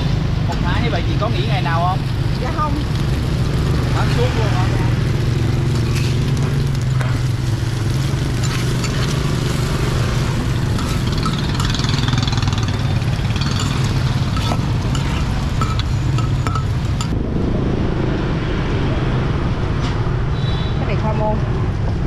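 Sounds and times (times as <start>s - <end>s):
food frying in hot fat: 0.0s - 17.2s
metal spatula scraping a griddle: 5.7s - 17.1s
low engine-like hum: 12.5s - 22.0s.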